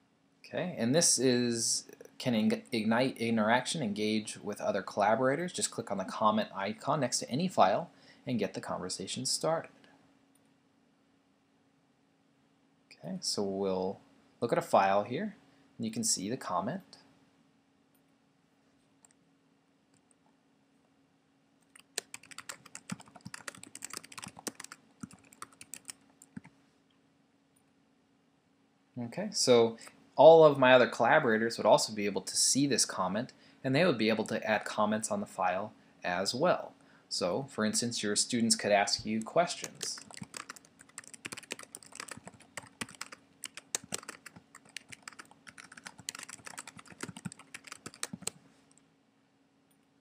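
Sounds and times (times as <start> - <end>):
computer keyboard typing: 21.7 - 26.5, 39.6 - 48.4.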